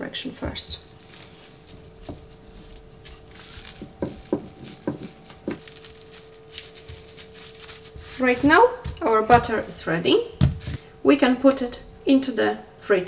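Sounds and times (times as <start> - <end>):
plastic film crinkling: 0.7 - 10.9
soft knocks of rolling pin: 3.7 - 5.7.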